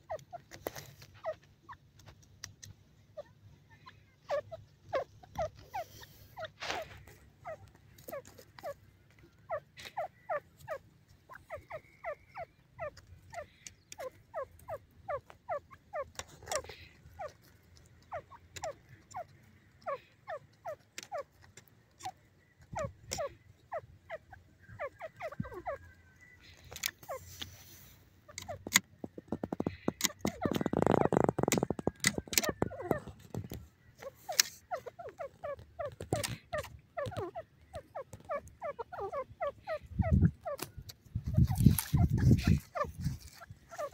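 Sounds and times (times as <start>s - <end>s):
francolin rattling call: 3.2s - 21.4s
sharp clicks: 28.3s - 34.6s
scratchy rustles: 40.5s - 43.9s.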